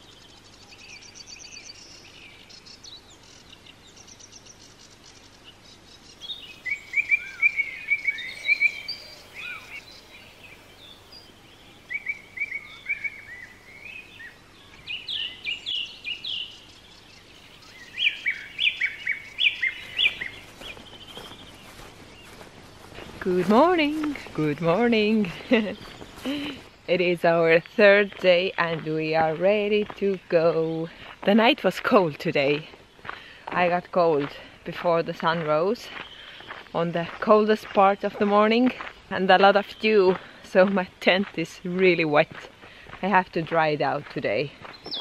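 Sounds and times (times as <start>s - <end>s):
songbirds singing: 0.0s - 45.0s.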